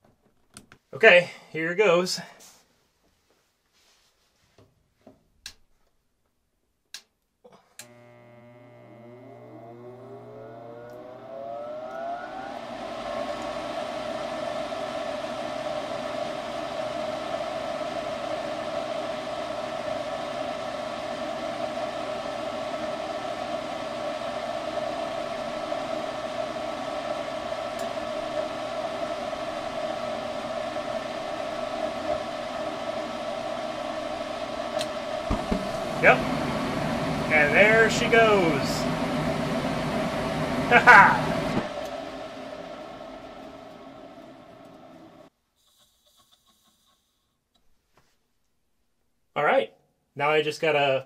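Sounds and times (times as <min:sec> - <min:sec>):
furnace blower motor whirring: 0:07.8 - 0:45.3.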